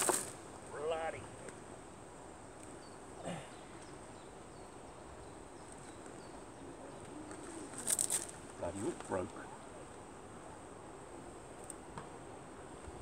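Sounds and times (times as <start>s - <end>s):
faint bird chirps: 2.5s - 8.3s.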